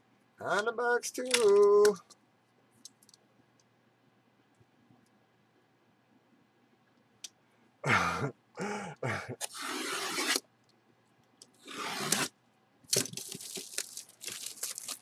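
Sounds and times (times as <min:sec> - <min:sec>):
cardboard scraping and tearing: 0:09.4 - 0:10.4, 0:11.6 - 0:12.3
cardboard crinkling: 0:12.9 - 0:15.0.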